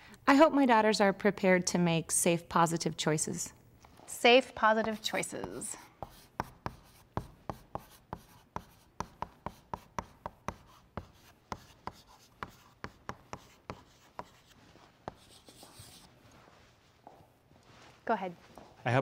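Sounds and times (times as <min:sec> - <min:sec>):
chalk writing on blackboard: 0:04.6 - 0:16.1.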